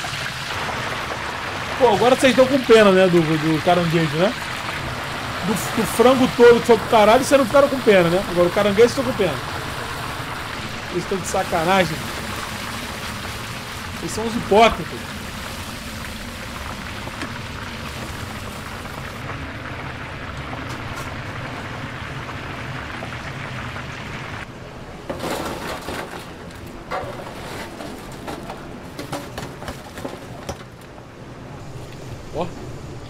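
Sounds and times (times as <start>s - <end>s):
deep-frying sizzle in hot oil: 0.0s - 24.5s.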